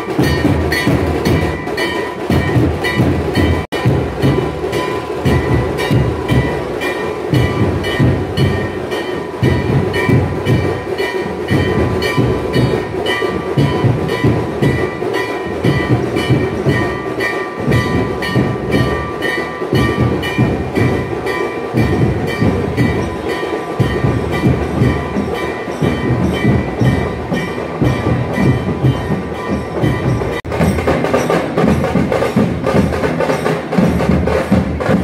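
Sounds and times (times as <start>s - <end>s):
deep drum strokes: 0.0s - 35.0s
ringing metal cymbals: 0.0s - 35.0s.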